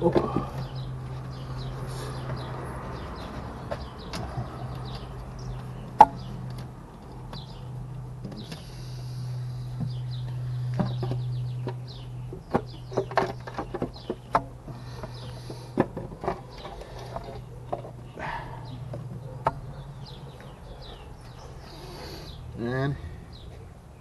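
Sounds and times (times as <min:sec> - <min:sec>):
birds chirping: 0:00.0 - 0:24.0
metal clicks and knocks: 0:03.0 - 0:07.6, 0:09.8 - 0:18.0.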